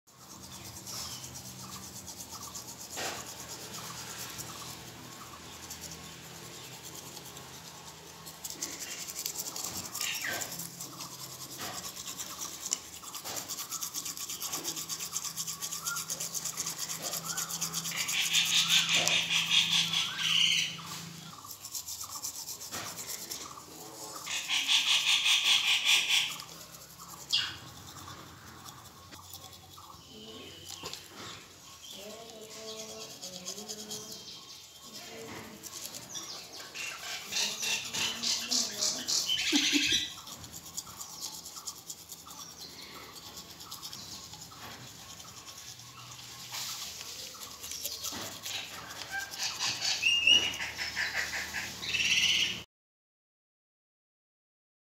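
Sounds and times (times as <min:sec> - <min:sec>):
toothbrush scrubbing a beak: 0:00.1 - 0:52.6
parakeet calls: 0:16.6 - 0:20.8, 0:24.2 - 0:26.4, 0:36.1 - 0:40.2, 0:48.2 - 0:52.6.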